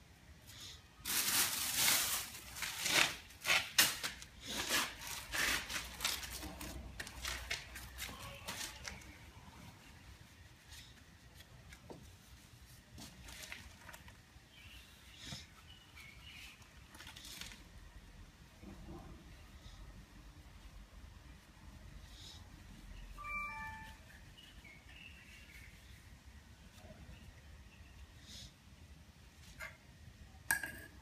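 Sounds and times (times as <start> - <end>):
plastic bag rustling: 1.0 - 9.3, 12.7 - 14.6.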